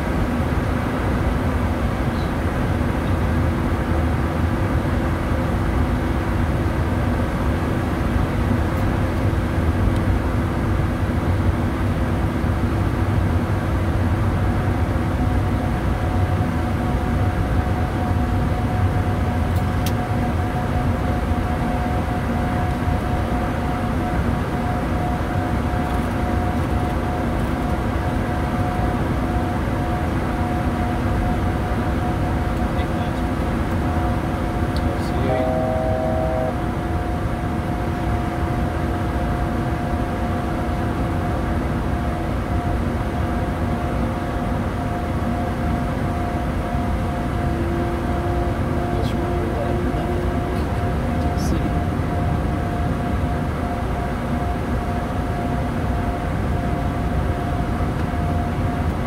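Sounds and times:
jet engines humming: 0.0 - 59.0
low hums: 22.4 - 38.3, 45.0 - 54.0
higher steady tone: 33.8 - 37.6, 45.0 - 54.4.

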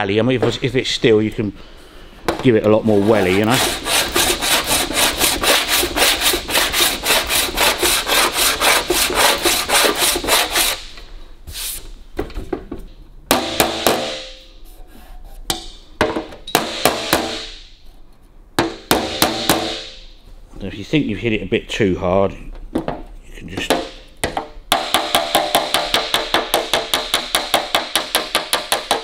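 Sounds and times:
file rasping on metal panel: 2.9 - 10.8.

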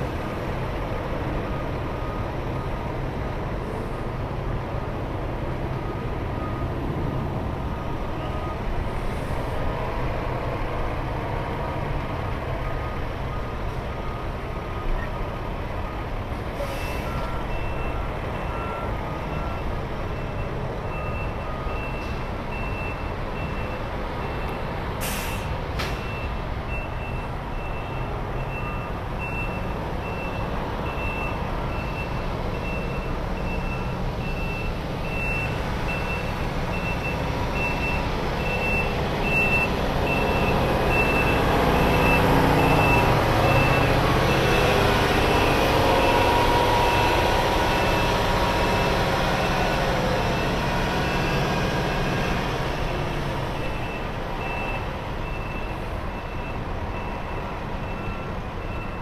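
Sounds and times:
diesel truck engines idling: 0.0 - 59.0
reversing alarm beeps: 1.4 - 2.8, 5.7 - 6.8, 8.1 - 9.3, 12.9 - 59.0
air brake hiss: 16.5 - 17.1, 25.0 - 26.0.

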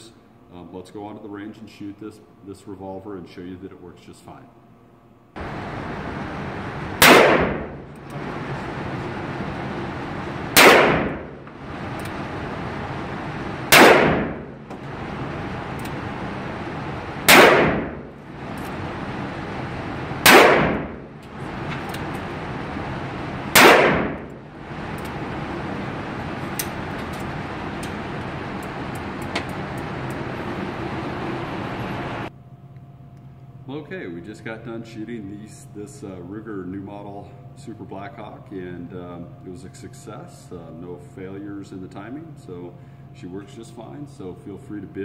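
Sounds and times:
steady background hum: 0.0 - 45.0
revolver shots with reverb: 7.0 - 8.0, 10.5 - 11.4, 13.7 - 14.7, 17.2 - 18.2, 20.2 - 21.2, 23.5 - 24.4.

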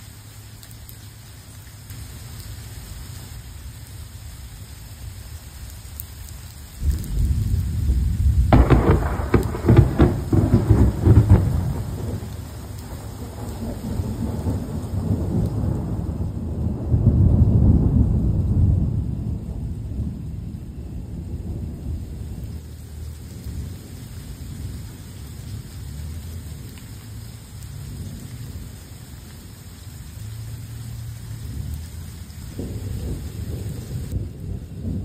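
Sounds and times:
steady rain: 0.0 - 35.0
thunder rumbling and cracking: 6.8 - 29.7, 30.3 - 35.0.

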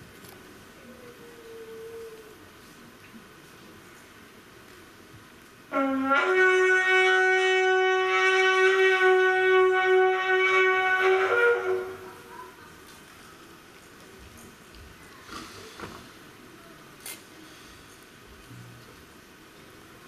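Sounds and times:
horn blown in held note: 5.7 - 12.3.

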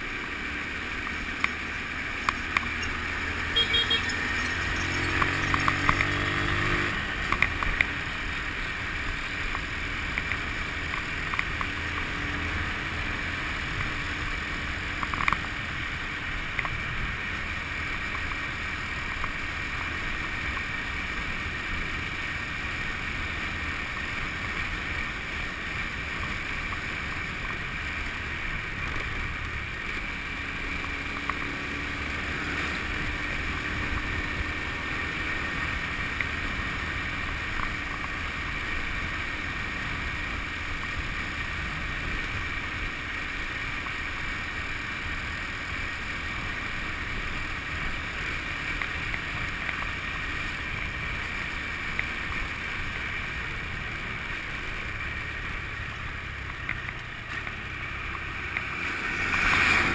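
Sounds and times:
wind and road noise: 0.0 - 59.9
motorbike engine running: 0.6 - 7.6.

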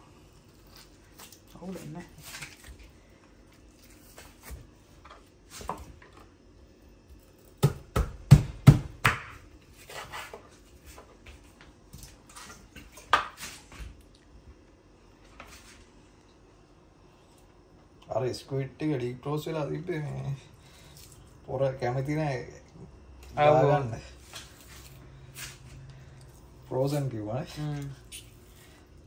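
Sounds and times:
knife chopping on wooden board: 7.6 - 9.4.

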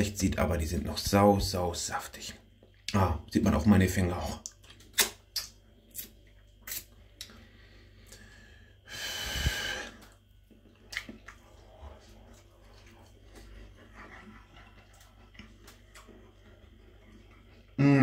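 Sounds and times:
person breathing out hard: 7.8 - 10.0.

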